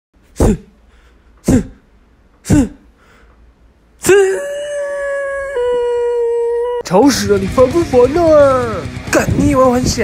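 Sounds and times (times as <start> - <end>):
person wailing: 4.0 - 6.8.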